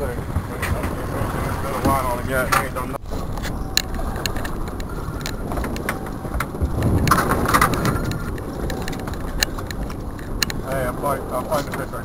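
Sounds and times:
boat engine rumbling: 0.0s - 12.0s
wind on microphone: 0.0s - 12.0s
sharp clicks: 6.7s - 10.6s.

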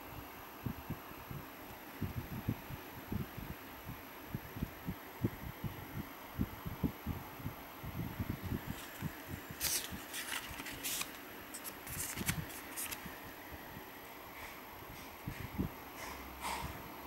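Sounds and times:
paper pages rustling and flicking: 8.6s - 13.2s.

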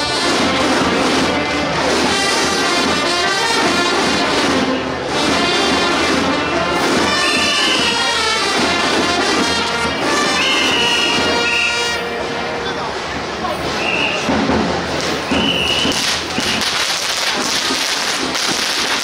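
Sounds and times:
snare drums: 0.0s - 12.0s, 13.6s - 19.0s
marching band playing: 0.0s - 19.0s
whistle blasts: 10.0s - 12.2s, 13.7s - 14.3s, 15.2s - 16.8s.

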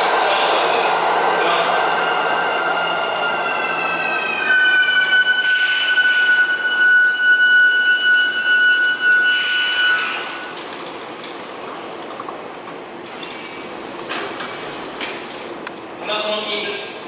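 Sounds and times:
high brake squeal: 4.4s - 10.6s.

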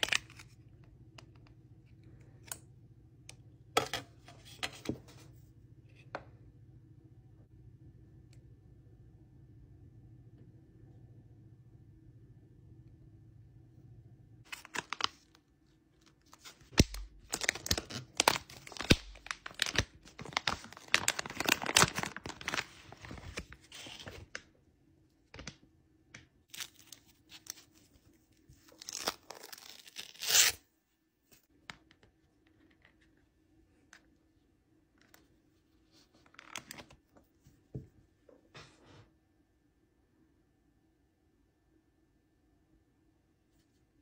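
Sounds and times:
plastic film crinkling and tearing: 14.5s - 15.4s, 16.3s - 24.4s, 28.6s - 30.6s.

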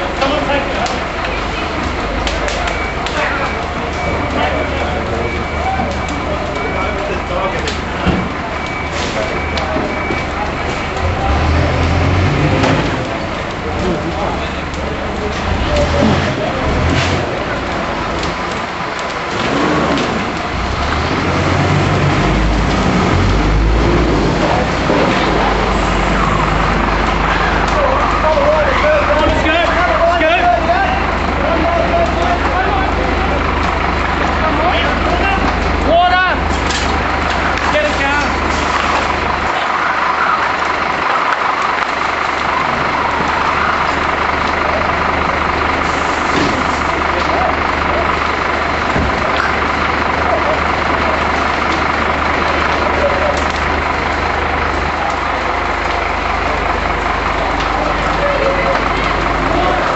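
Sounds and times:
vehicle engine rumbling: 0.0s - 59.9s.

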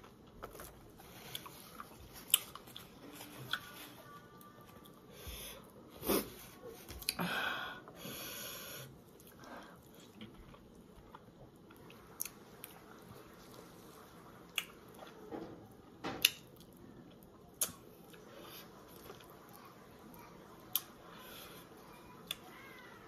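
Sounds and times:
lip smacks: 17.5s - 18.2s.

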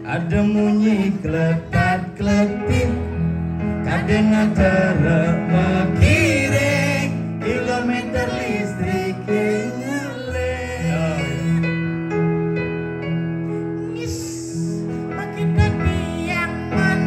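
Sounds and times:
man singing into microphone: 0.0s - 11.9s.

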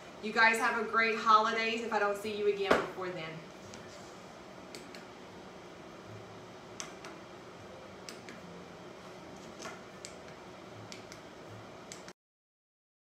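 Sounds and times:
faint steady hum: 0.0s - 12.2s
soft clicks: 4.7s - 5.1s.

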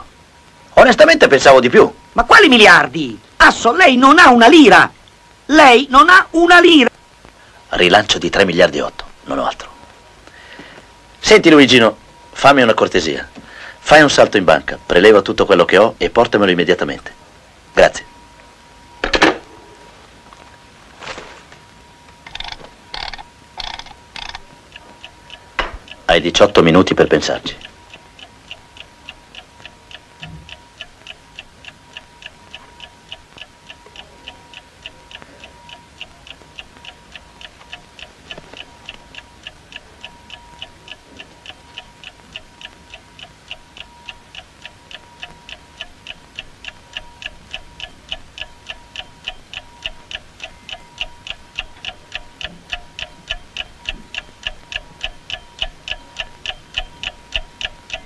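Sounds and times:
faint steady tone: 0.0s - 58.0s
clock ticking: 0.8s - 4.9s, 5.5s - 7.0s, 22.1s - 58.0s.

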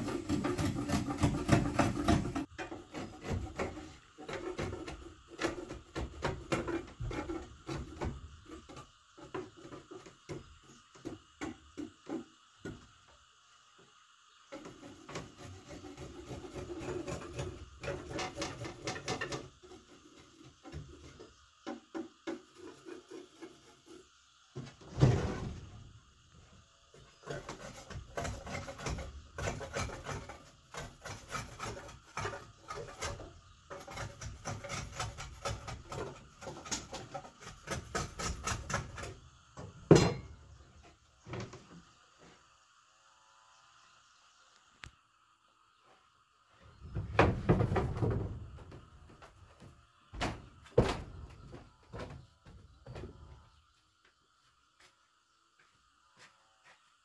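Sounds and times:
wood rasping strokes: 0.0s - 12.8s, 14.5s - 24.2s, 26.9s - 39.2s.

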